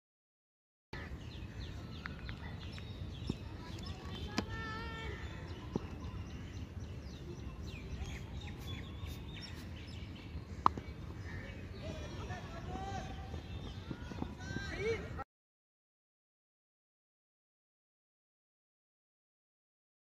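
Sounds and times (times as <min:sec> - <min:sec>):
birds chirping: 0:01.0 - 0:15.2.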